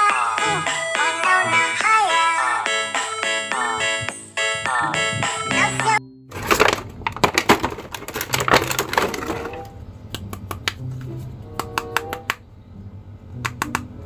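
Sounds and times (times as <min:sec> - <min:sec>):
background music: 0:00.0 - 0:06.4
plastic figures knocking together: 0:06.3 - 0:09.7
plastic bag crinkling: 0:06.4 - 0:09.7.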